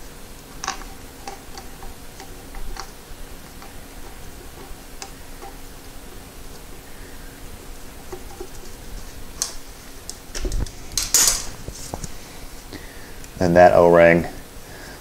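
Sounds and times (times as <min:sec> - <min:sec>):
faint steady hum: 0:00.0 - 0:15.0
metal bolts clicking and tapping: 0:10.1 - 0:11.5.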